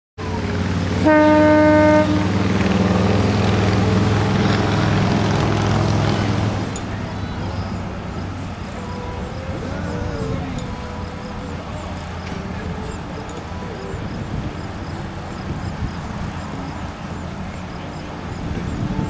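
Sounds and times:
low engine rumble: 0.2s - 19.0s
locomotive horn: 0.5s - 6.6s.

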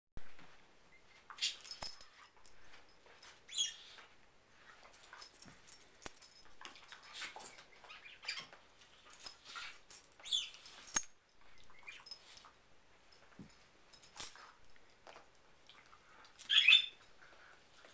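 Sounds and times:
dogs scuffling and mouthing: 1.1s - 17.9s
dog squeaky whines: 16.4s - 17.0s.

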